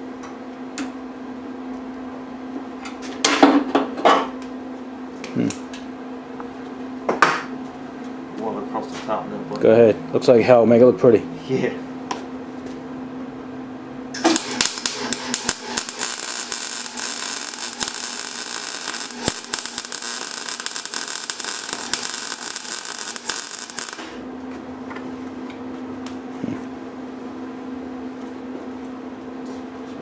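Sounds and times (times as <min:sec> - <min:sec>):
steady low hum: 0:04.4 - 0:29.8
welder arc crackling: 0:14.2 - 0:24.2.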